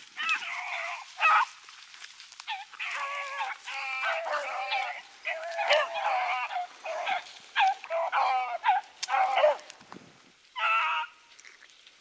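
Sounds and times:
hounds baying: 0.1 - 1.6, 2.4 - 9.7, 10.6 - 11.2.

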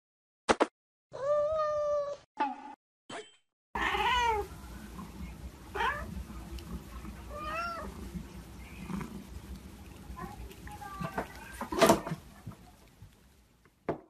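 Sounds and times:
cats meowing: 3.8 - 4.6, 5.7 - 8.1.

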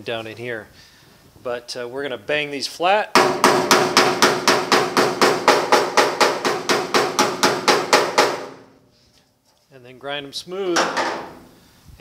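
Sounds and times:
hammer striking sheet steel: 3.2 - 8.8, 10.7 - 11.6.

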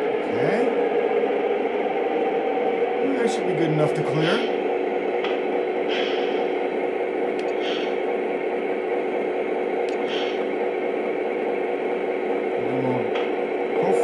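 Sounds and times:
constant hum: 0.0 - 14.0
model locomotive diesel rumble: 0.0 - 14.0
short hisses: 7.5 - 8.0, 10.0 - 10.5.

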